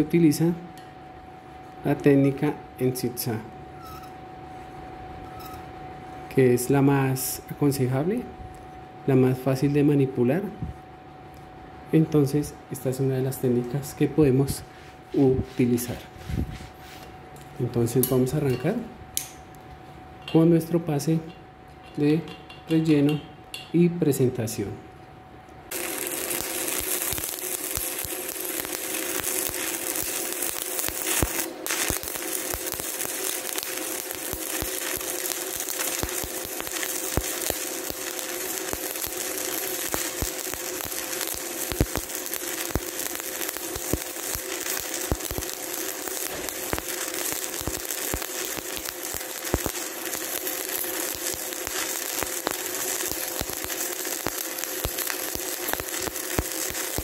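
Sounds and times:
welding arc crackling with pops: 25.6s - 57.0s.

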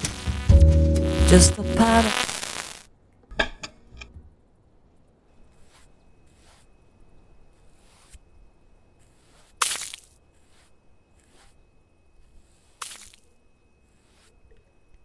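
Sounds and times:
paint swishing on a wall: 5.6s - 6.8s, 7.5s - 8.2s, 9.0s - 11.6s, 12.2s - 14.6s.

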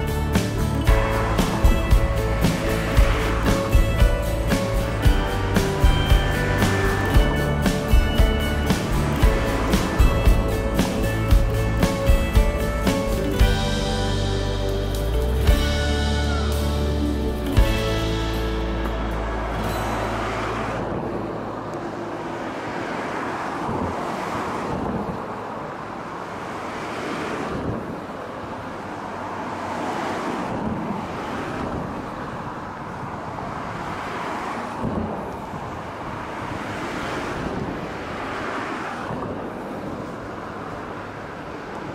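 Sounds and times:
wind noise on microphone: 23.5s - 25.7s, 27.4s - 28.4s, 30.4s - 41.9s.

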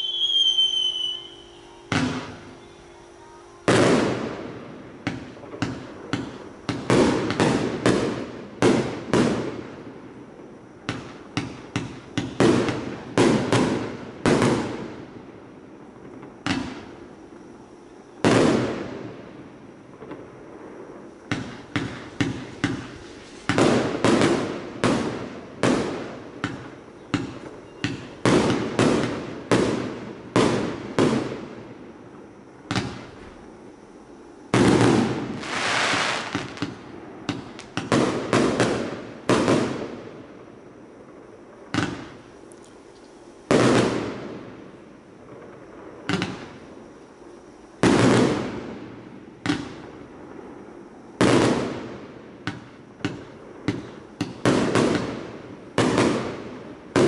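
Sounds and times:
firework bangs: 0.0s - 2.6s, 3.3s - 10.2s, 10.8s - 15.1s, 19.9s - 33.3s, 34.5s - 40.1s, 43.5s - 44.6s, 47.8s - 50.4s, 51.2s - 57.0s.

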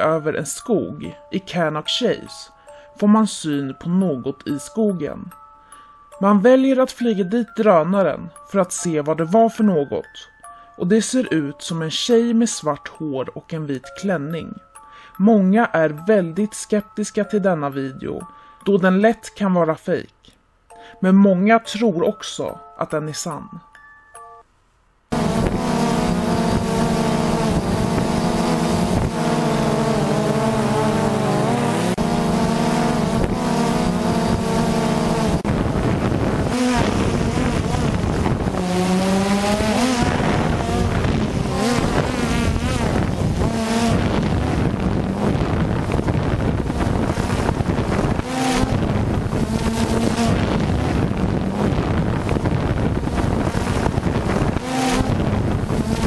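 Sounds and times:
drone propellers buzzing: 25.1s - 56.0s.

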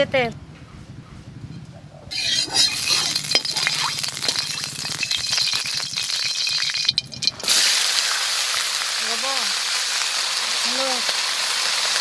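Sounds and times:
spatula stirring in a pan: 2.1s - 7.4s
oil crackling and popping: 2.1s - 12.0s.

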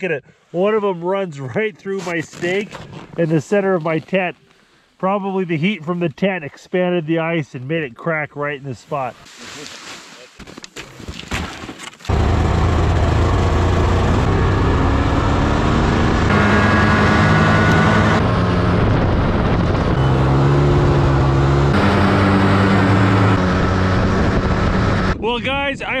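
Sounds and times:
snowmobile engine running: 12.1s - 25.2s.

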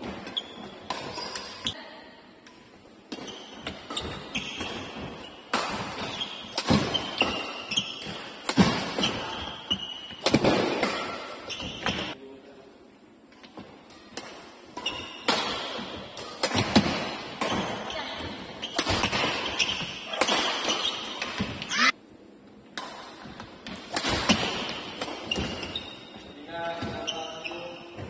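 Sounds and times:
racket hitting shuttlecock: 0.0s - 1.7s, 2.4s - 12.1s, 13.4s - 21.9s, 22.7s - 26.2s
shoes squeaking: 0.0s - 1.8s, 3.1s - 10.3s, 11.0s - 12.2s, 14.8s - 15.2s, 17.3s - 22.0s, 24.8s - 28.0s.

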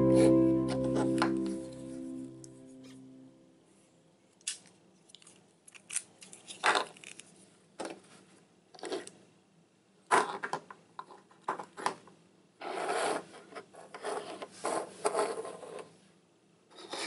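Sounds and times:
plastic toys scraping table: 8.8s - 9.1s, 12.6s - 15.9s, 16.7s - 17.0s.

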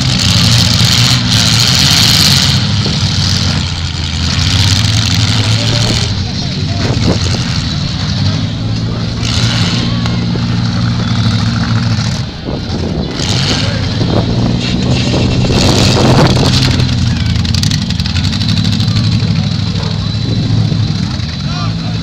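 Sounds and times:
car engines running hard: 0.0s - 22.0s
cars crashing and scraping: 0.0s - 22.0s.

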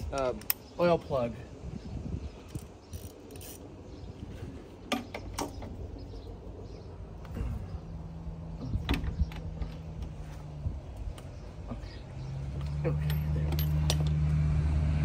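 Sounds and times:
metal wrench clinking and scraping: 12.9s - 14.2s.

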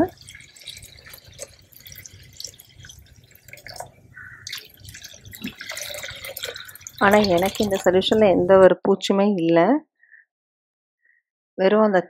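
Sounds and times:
liquid trickling and dripping: 0.0s - 8.4s.

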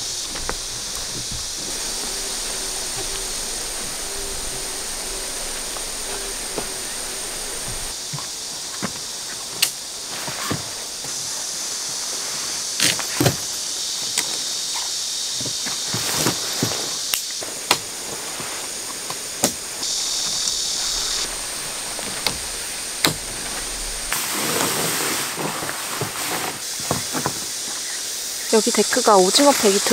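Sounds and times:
footsteps on wooden boards: 0.0s - 9.1s, 17.7s - 27.5s
steady high hiss: 0.0s - 29.9s
tent poles clicking and knocking: 19.0s - 24.2s.

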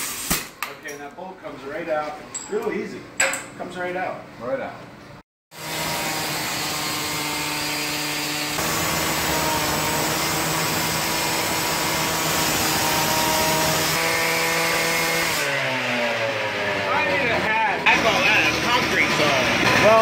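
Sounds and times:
cut-off saw engine: 5.5s - 20.0s.

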